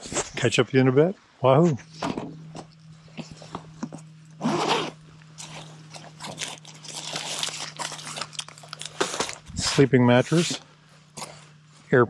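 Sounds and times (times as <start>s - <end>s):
steady low hum: 0.0s - 12.0s
zipper rasp: 4.4s - 8.0s.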